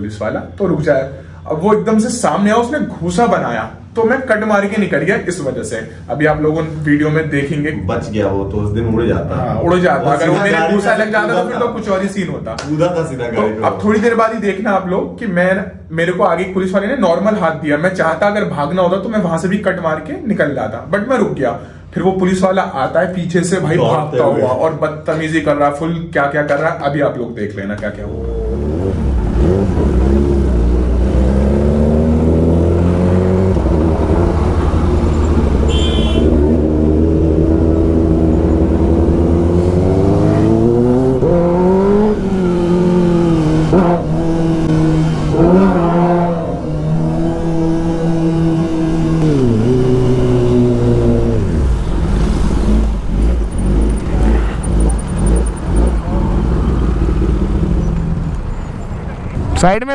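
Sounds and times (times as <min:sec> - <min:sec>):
motorcycle engine revving: 0:28.1 - 0:58.3.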